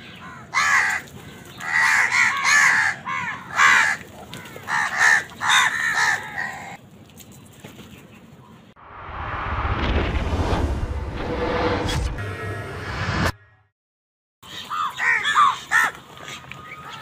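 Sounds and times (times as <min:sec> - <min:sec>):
crows cawing: 0:00.1 - 0:06.8, 0:14.6 - 0:17.0.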